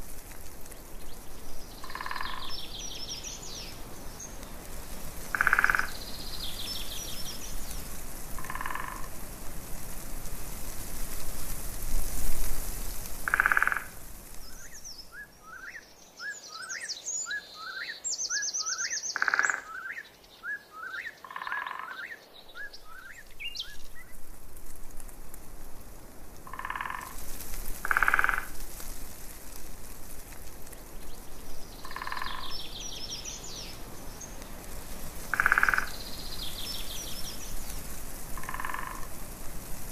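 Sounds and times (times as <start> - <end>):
birds chirping and trilling: 1.0 - 4.4, 14.4 - 24.2, 31.1 - 34.4
frogs calling in pulsed trills: 1.8 - 2.7, 5.3 - 6.0, 13.3 - 13.9, 18.6 - 20.0, 20.8 - 22.2, 31.8 - 32.7, 35.3 - 36.0, 38.4 - 39.1.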